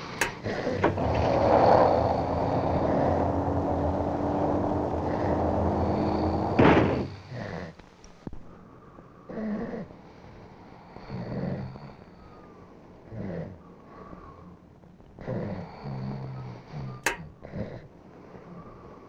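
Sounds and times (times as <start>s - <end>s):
steady rushing noise: 0.2s - 7.2s
door slamming shut: 0.2s - 7.3s.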